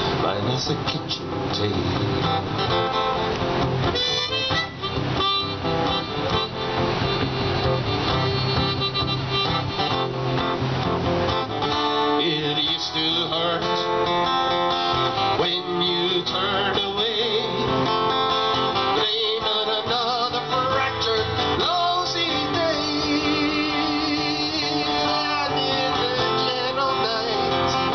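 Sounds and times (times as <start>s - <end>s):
acoustic guitar strumming: 0.0s - 27.9s
wavering melody line: 3.8s - 10.6s.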